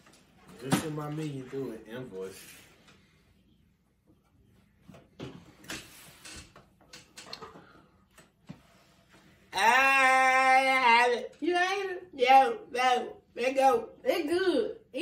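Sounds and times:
man groaning in disgust: 9.5s - 11.0s.

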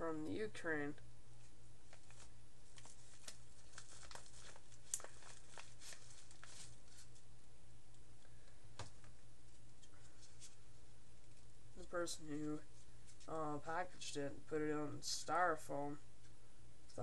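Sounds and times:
paper snapping: 1.9s - 6.5s
paper packet crinkling: 1.9s - 7.3s.

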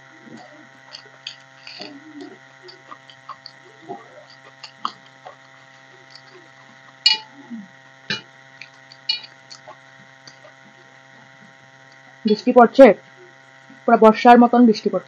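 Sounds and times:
electrical hum: 0.0s - 15.0s
fingers clicking on metal plate: 8.1s - 10.6s.

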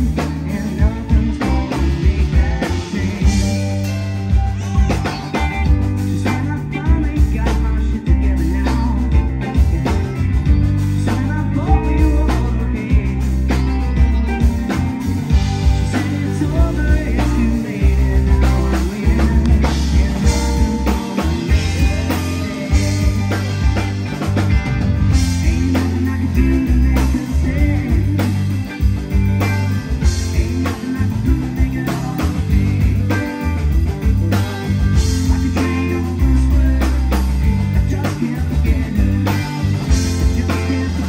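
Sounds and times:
drum kit: 0.0s - 41.0s
electric guitars: 0.0s - 41.0s
keyboard: 0.0s - 41.0s.

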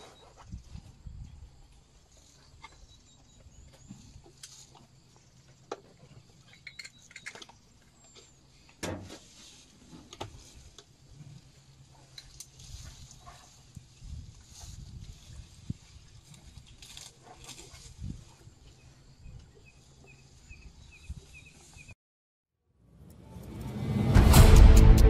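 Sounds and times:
leaves rustling: 9.0s - 18.7s.

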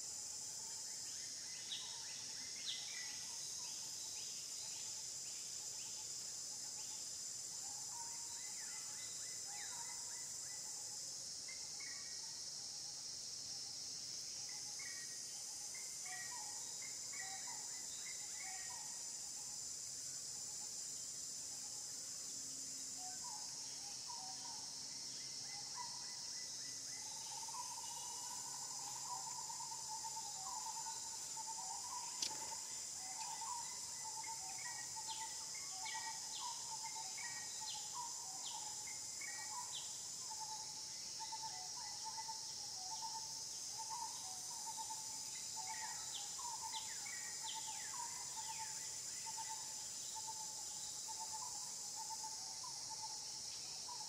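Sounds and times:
high-pitched insect drone: 0.0s - 54.0s
sharp click: 32.2s - 32.5s.

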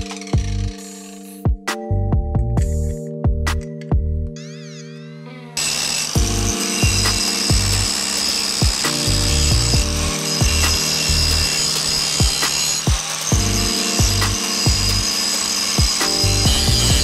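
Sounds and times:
power tool grinding steel: 0.0s - 1.4s, 5.6s - 17.0s
background music with beat: 0.0s - 4.4s, 6.2s - 17.0s.

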